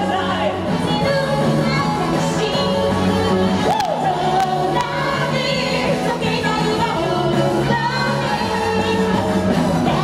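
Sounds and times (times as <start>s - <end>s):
bass guitar: 0.0s - 10.0s
woman singing: 0.0s - 10.0s.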